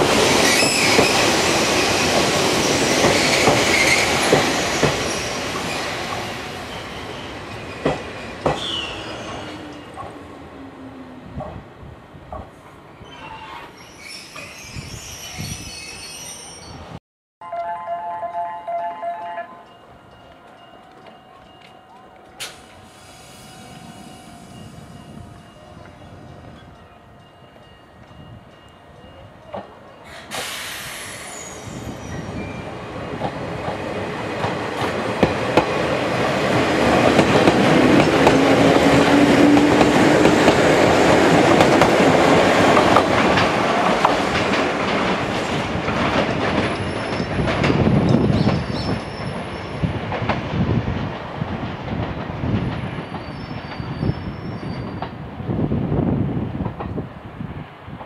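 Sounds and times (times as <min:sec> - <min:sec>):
electric train passing: 0:00.0 - 0:58.0
rail-joint clicks: 0:03.0 - 0:06.3, 0:07.2 - 0:10.2, 0:19.2 - 0:22.8, 0:27.6 - 0:31.3, 0:33.1 - 0:55.2
wheel squeal: 0:13.0 - 0:16.8, 0:30.4 - 0:32.7, 0:53.0 - 0:55.0
air hiss: 0:22.4 - 0:24.9, 0:30.1 - 0:31.8.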